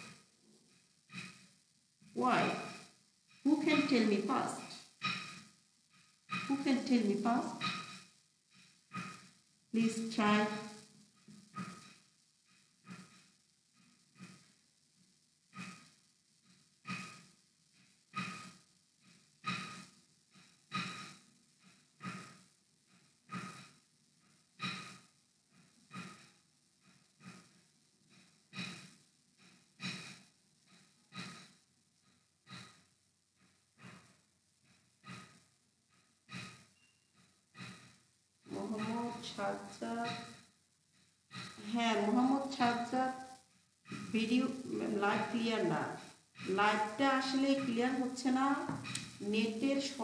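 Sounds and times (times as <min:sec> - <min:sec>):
soft breathing close to microphone: 0:00.0 - 0:14.6, 0:15.5 - 0:50.0.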